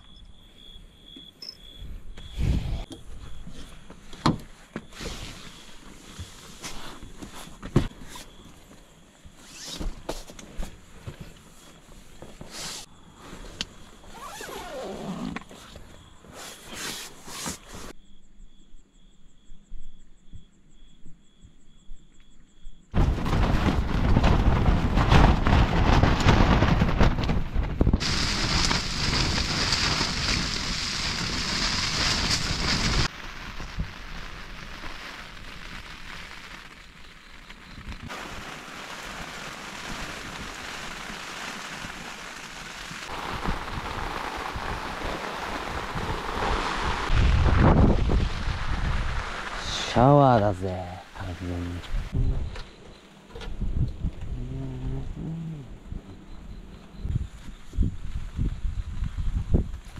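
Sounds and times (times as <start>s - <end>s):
wind gusting against tent: 2.3s - 3.5s, 23.0s - 36.0s, 37.7s - 59.9s
rain on a tent: 4.2s - 15.7s, 23.0s - 52.2s
tent fabric flapping: 4.5s - 8.4s, 9.3s - 18.0s, 23.0s - 33.9s, 37.8s - 50.6s.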